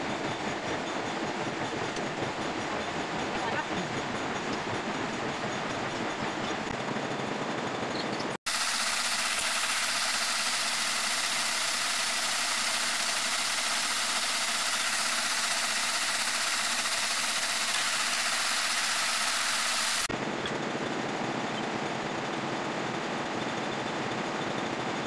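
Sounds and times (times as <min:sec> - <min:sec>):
metal lathe running: 0:08.5 - 0:20.1.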